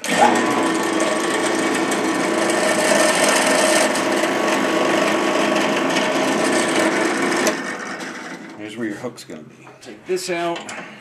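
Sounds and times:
power drill boring into wood: 0:00.0 - 0:08.5.

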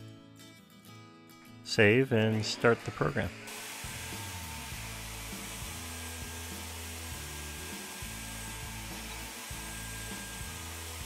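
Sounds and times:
background music: 0:00.0 - 0:11.0
router spindle cutting wood: 0:02.4 - 0:11.0.

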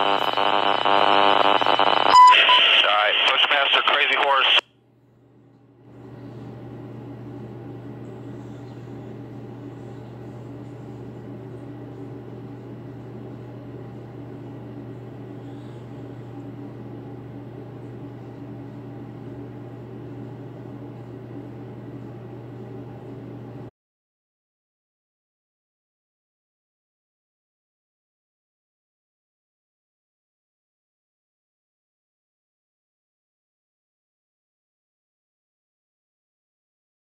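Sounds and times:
steady low hum: 0:00.0 - 0:23.7
faint held tones: 0:00.2 - 0:04.6.

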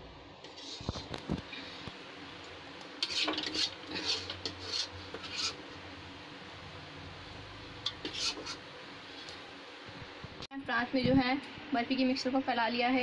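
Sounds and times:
steel spoon scraping steel tray: 0:00.4 - 0:01.0, 0:03.0 - 0:05.6, 0:07.8 - 0:08.6.

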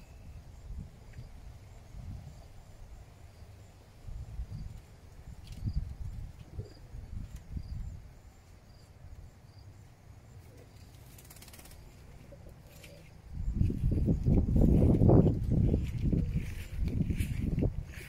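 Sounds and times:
faint bird chirps: 0:00.0 - 0:01.3
wind rumbling on microphone: 0:00.0 - 0:03.0, 0:04.0 - 0:08.2, 0:12.3 - 0:18.0.

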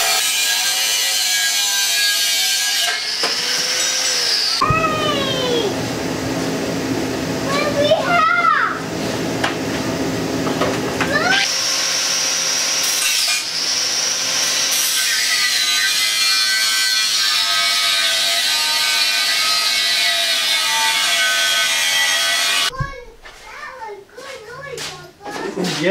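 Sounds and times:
angle grinder cutting steel: 0:00.0 - 0:05.7, 0:11.2 - 0:22.7.

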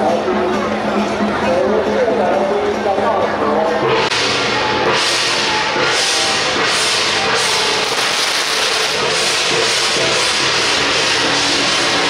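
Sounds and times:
faint procession music: 0:00.0 - 0:12.0
firecrackers crackling: 0:04.1 - 0:12.0.

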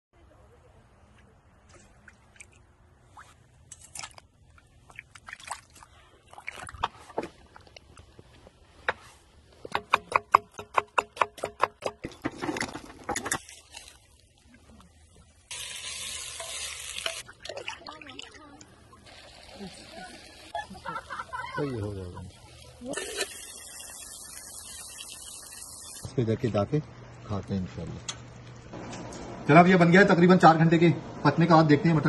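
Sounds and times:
onions sizzling in a pot: 0:15.5 - 0:17.2, 0:21.8 - 0:26.0.

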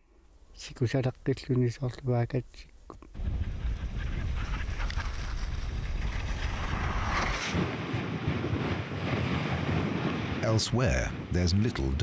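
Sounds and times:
dog sled rushing over snow: 0:03.2 - 0:11.1
wind buffeting microphone: 0:03.2 - 0:12.0.

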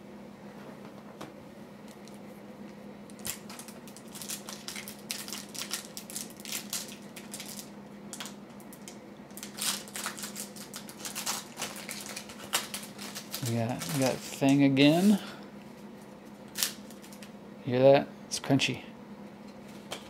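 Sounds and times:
foil wrapper crinkling and tearing: 0:03.2 - 0:15.2, 0:16.5 - 0:17.3.

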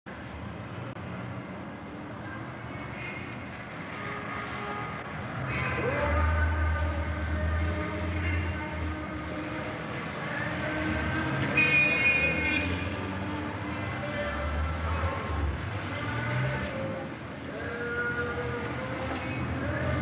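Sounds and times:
street traffic: 0:00.0 - 0:20.0
car horns honking: 0:11.4 - 0:13.0.

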